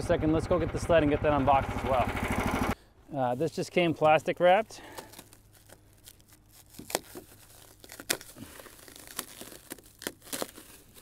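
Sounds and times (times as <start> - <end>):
plastic wrap crinkling: 3.4 - 11.0.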